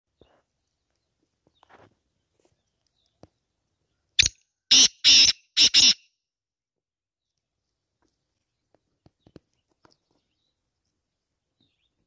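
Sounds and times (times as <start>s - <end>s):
bird calling loud notes: 4.2s - 6.1s.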